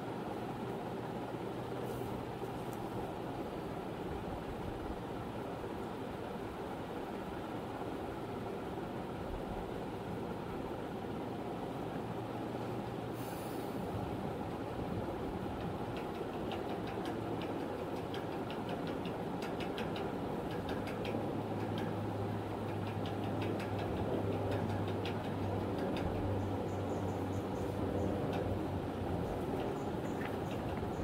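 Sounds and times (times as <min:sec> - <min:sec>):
rumbling background hum: 0:00.0 - 0:31.0.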